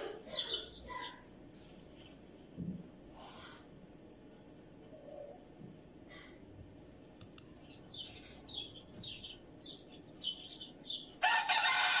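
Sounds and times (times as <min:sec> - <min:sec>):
chickens chirping: 0:00.0 - 0:01.3
rooster crowing: 0:11.2 - 0:12.0.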